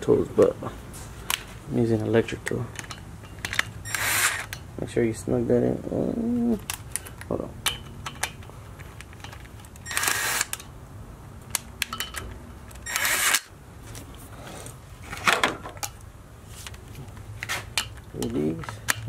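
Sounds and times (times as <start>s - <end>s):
metallic clicks of tools: 2.4s - 4.7s, 6.6s - 10.7s, 11.4s - 13.5s, 17.4s - 19.0s
electric power tool bursts: 3.8s - 4.5s, 9.9s - 10.6s, 12.8s - 13.5s.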